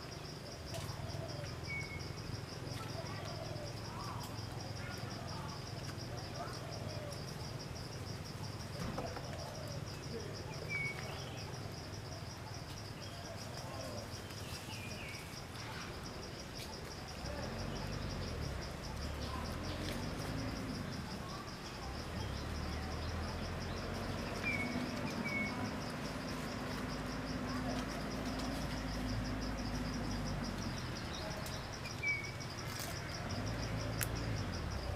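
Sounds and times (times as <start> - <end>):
insects trilling: 0.0 - 34.9.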